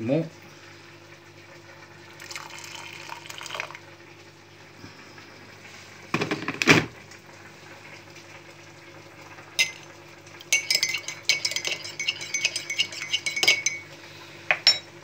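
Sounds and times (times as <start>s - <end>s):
teaspoon clinking against mug: 9.6s - 9.9s, 10.5s - 13.9s.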